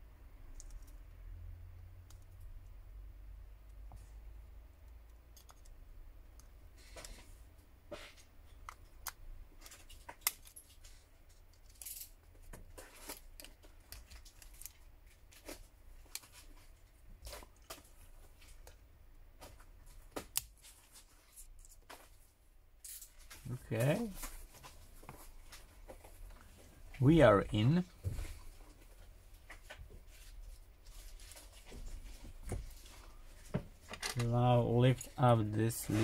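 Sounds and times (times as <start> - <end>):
tools clicking and scraping on plastic: 4.8 - 7.3, 8.0 - 18.8.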